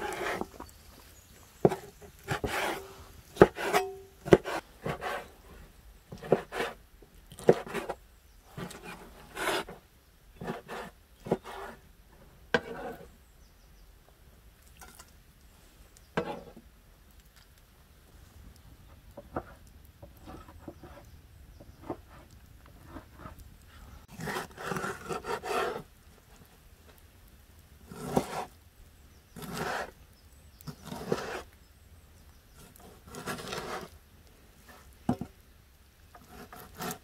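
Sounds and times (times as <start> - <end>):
knife scraping board: 0.0 - 0.5, 1.6 - 5.3, 6.1 - 6.8, 7.4 - 8.0, 8.6 - 9.8, 10.4 - 11.8, 12.6 - 13.1, 16.2 - 16.6, 24.1 - 25.8, 27.9 - 28.5, 29.4 - 29.9, 30.7 - 31.5, 32.6 - 34.0, 36.2 - 37.0
cleaver chopping on wooden board: 3.4 - 4.6.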